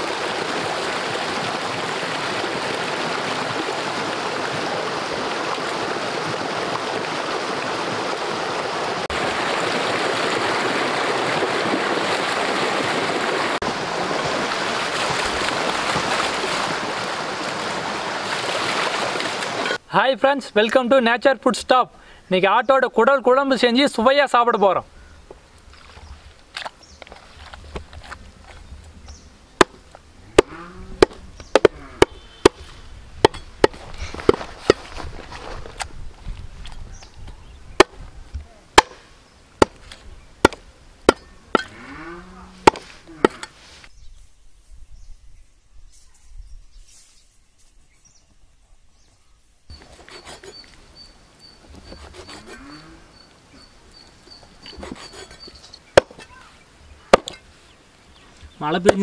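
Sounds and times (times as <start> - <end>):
cleaver chopping on wooden block: 30.4 - 32.6, 38.8 - 39.0, 40.4 - 41.7, 42.7 - 43.4, 56.0 - 56.2, 57.1 - 57.4
knife chopping into wood: 38.8 - 39.0, 42.7 - 43.4.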